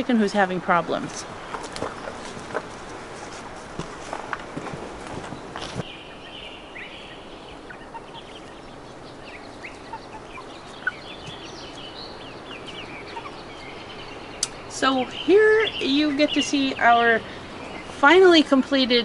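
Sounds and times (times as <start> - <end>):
footsteps: 1.1 - 5.9
high bird chirps: 5.8 - 18.0.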